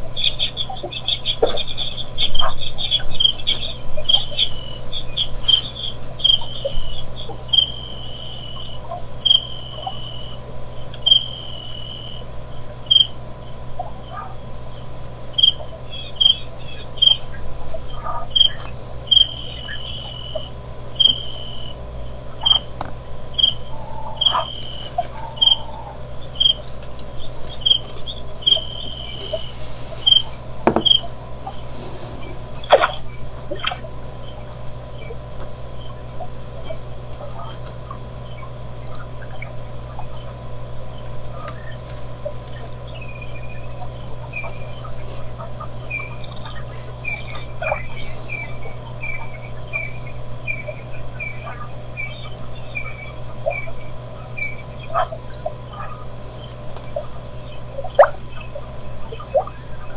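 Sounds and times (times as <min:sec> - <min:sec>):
low steady hum: 0:00.0 - 0:59.9
bird whistling: 0:00.1 - 0:10.4, 0:11.0 - 0:13.2, 0:15.4 - 0:21.8, 0:23.3 - 0:35.2, 0:45.9 - 0:55.1.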